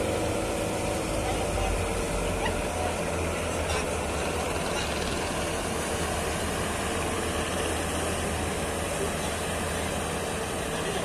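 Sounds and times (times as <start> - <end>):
boat engines running: 0.0 - 11.0.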